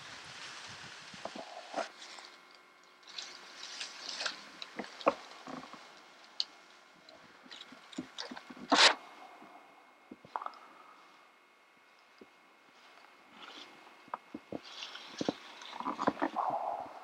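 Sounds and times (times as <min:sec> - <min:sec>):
footsteps in dry leaves: 0:00.0 - 0:06.1
twigs snapping: 0:00.4 - 0:09.0.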